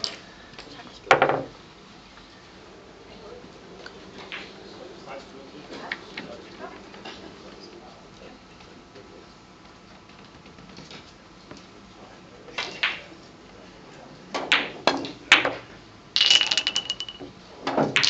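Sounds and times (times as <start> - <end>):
billiard balls clicking: 3.8 - 4.7, 14.4 - 18.0.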